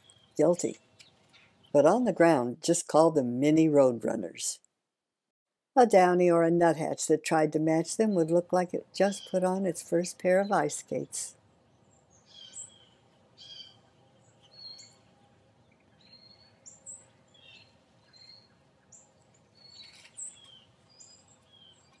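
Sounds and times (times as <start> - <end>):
faint songbird chirps: 11.7 - 22.0.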